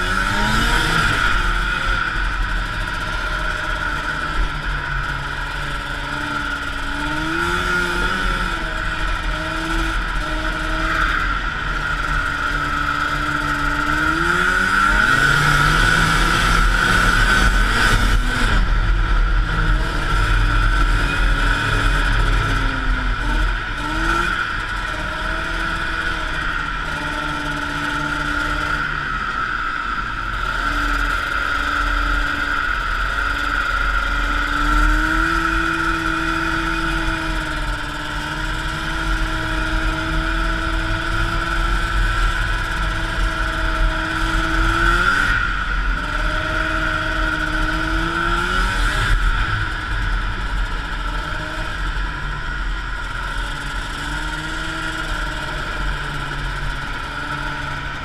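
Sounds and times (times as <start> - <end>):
snowmobile engine revving: 0.0 - 58.0
steady high whine: 0.0 - 58.0.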